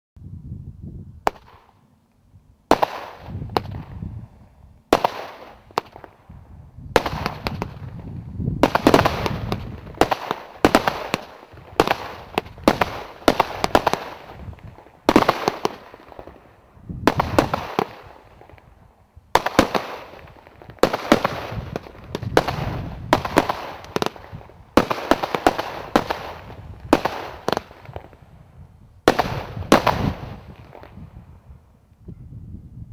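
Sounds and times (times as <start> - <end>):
firework bangs: 1.2 - 1.8, 2.7 - 4.1, 4.9 - 6.3, 6.9 - 28.4, 29.0 - 31.2
dense crackling of bursting stars: 4.9 - 31.0.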